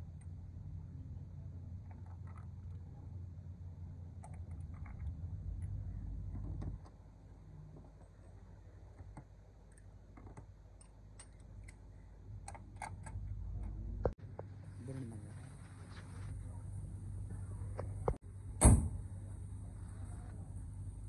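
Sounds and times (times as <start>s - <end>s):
low rumble: 0.0s - 9.0s.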